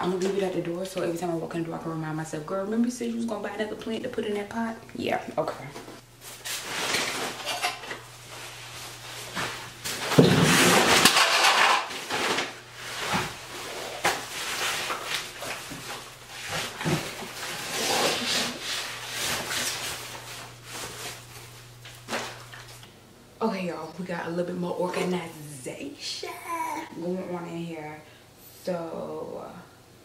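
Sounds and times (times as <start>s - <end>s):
bags rustling: 6.2s - 22.8s.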